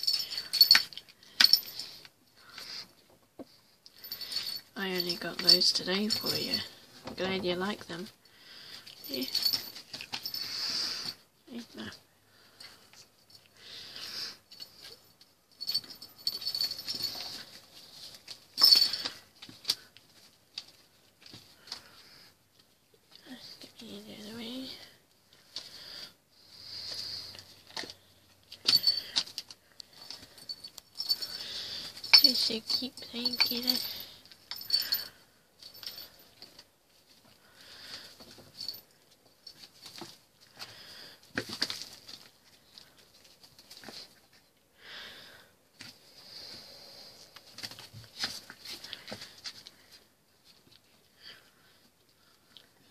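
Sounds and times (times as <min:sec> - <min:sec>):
cat toy balls jingling: 0:00.0 - 0:02.8, 0:04.0 - 0:08.1, 0:08.8 - 0:11.9, 0:14.5 - 0:20.8, 0:26.7 - 0:36.6.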